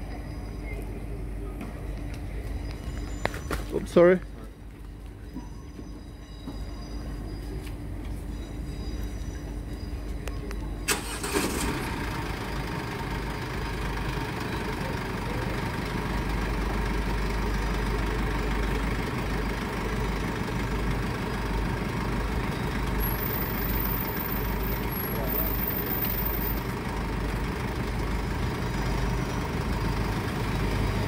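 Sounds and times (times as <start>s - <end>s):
street noise: 0.0s - 31.0s
vehicle engine idling: 0.0s - 31.0s.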